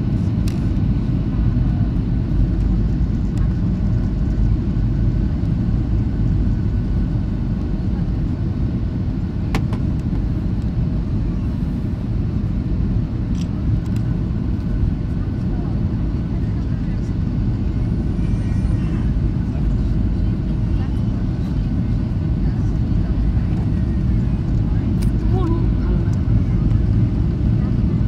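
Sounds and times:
aircraft engine rumble: 0.0 - 28.0.

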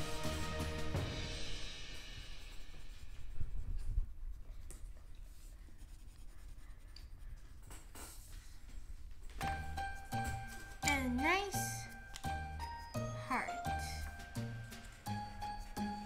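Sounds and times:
colored pencil scratching on paper: 2.4 - 8.4.

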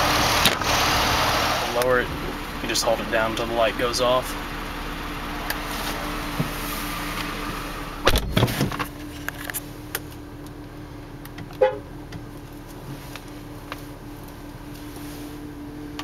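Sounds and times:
steady low hum: 0.0 - 16.0
car horn toot: 11.6 - 11.9.

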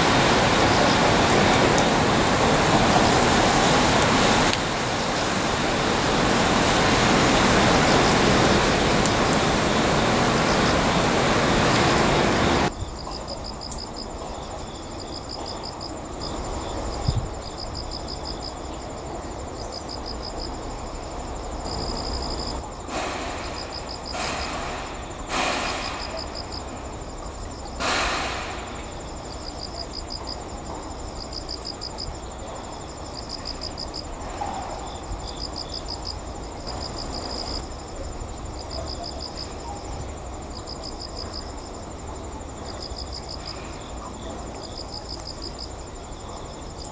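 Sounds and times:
insects chirping in pulsed trains: 0.0 - 46.9
brief rushes of noise: 27.8 - 28.9.

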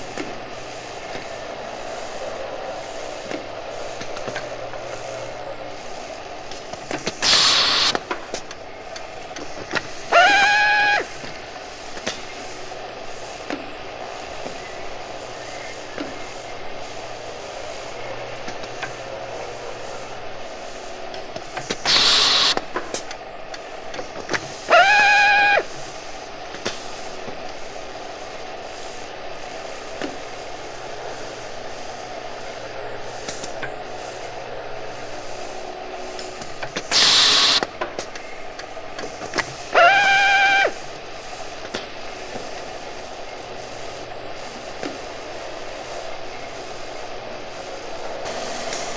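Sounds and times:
steady background noise: 0.0 - 48.9
electric drill motor whining: 10.1 - 11.2, 24.7 - 25.7, 39.7 - 40.8
brief hiss: 48.2 - 48.9.

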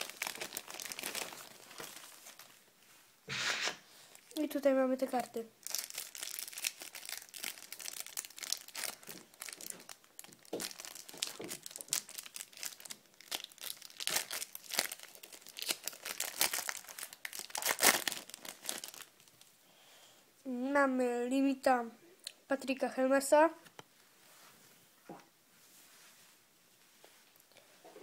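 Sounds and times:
cellophane wrapper crinkling: 0.0 - 2.6, 4.1 - 19.5.

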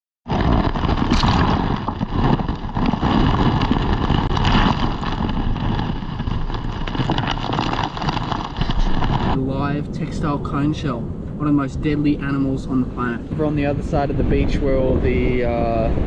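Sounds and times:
waves washing over pebbles: 0.3 - 9.4
surf rumble: 0.3 - 16.0
wind on microphone: 0.3 - 16.0.

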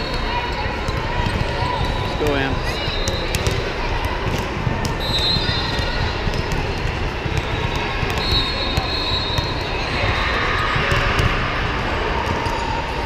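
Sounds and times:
sports hall crowd noise: 0.0 - 13.0.

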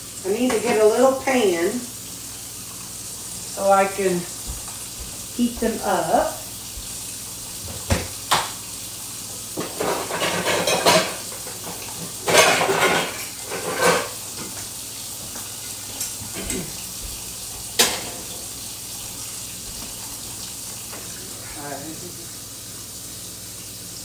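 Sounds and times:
pots and pans clattering: 9.5 - 18.6.

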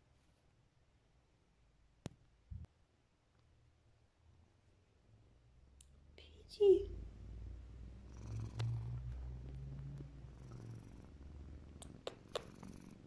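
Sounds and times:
cat purring: 6.8 - 13.0.

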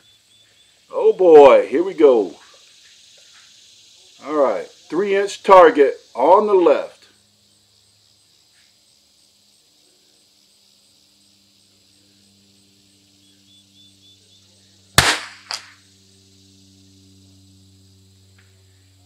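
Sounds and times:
faint echo crack: 15.0 - 15.8
rifle shot crack: 15.0 - 15.8.

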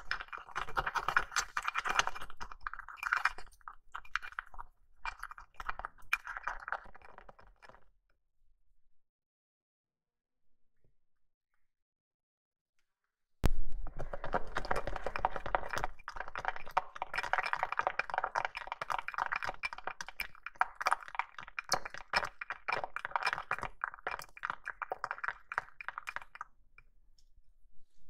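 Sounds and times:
spoon stirring wet clicks: 14.8 - 26.4.

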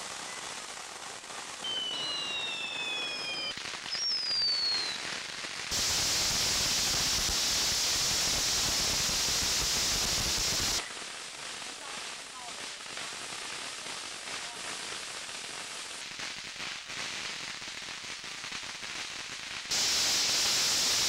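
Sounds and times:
firework fountains hissing: 0.0 - 21.0
loud spark spray hiss: 0.0 - 21.0
high falling whistles: 1.6 - 5.2.

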